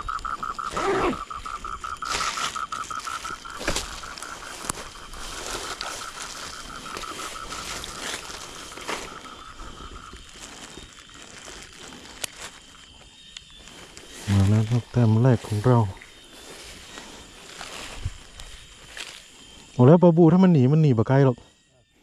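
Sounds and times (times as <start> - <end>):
frog trilling: 0.0 - 21.9.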